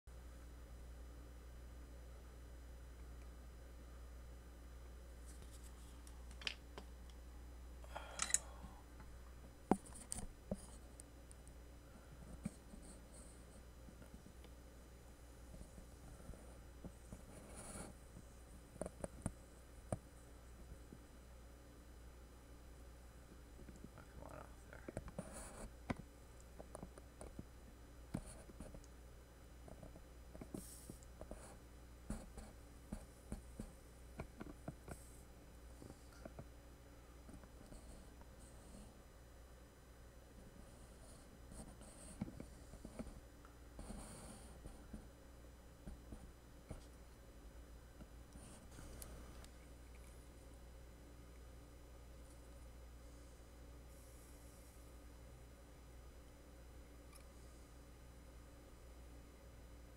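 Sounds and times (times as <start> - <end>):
low steady hum: 0.1 - 59.9
soft hiss: 0.2 - 59.9
small tools clicking: 8.1 - 8.5.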